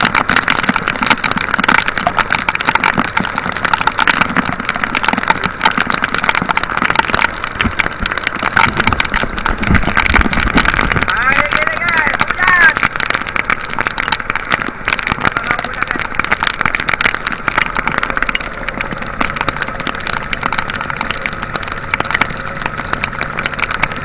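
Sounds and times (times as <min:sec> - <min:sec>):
boat engine droning: 0:00.0 - 0:24.0
heavy rain beating down: 0:00.0 - 0:24.0
wind rumbling on microphone: 0:00.0 - 0:24.0.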